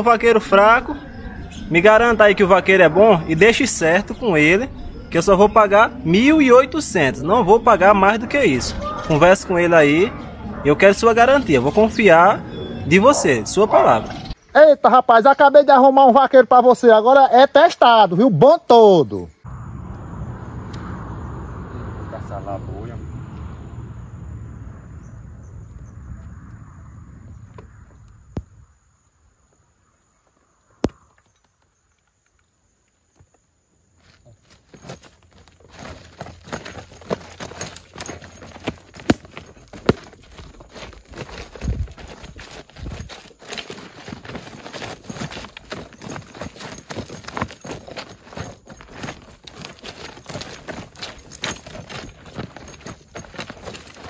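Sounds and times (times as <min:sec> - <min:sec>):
leather gear clicking and rustling: 0:07.8 - 0:12.3, 0:34.0 - 0:54.0
high insect drone: 0:19.4 - 0:46.8
low rumble: 0:19.5 - 0:28.7.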